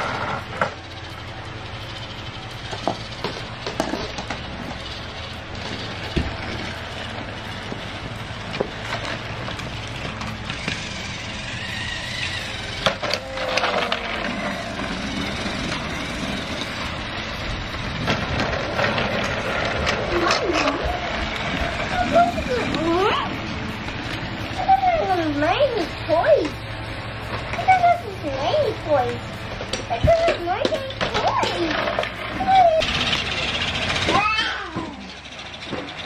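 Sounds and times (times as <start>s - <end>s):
toy train motor whirring: 0.0s - 36.0s.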